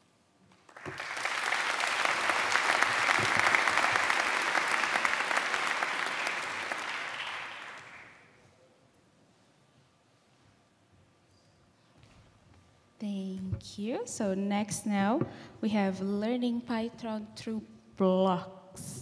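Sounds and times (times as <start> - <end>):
large audience applauding: 0.6 - 8.3.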